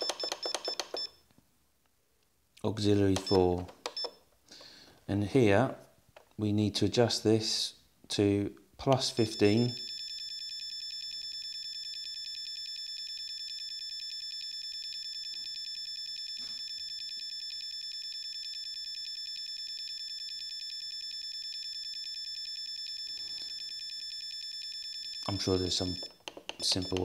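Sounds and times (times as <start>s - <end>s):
high piercing rapid beeps: 0.0s - 1.2s, 9.3s - 26.2s.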